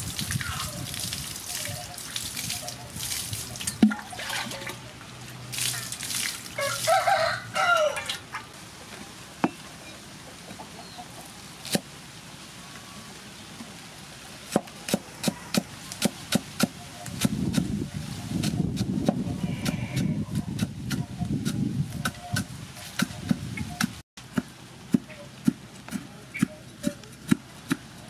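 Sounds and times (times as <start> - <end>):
rooster crowing: 6.6 - 8.2
cleaver chopping on wooden board: 20.6 - 27.9.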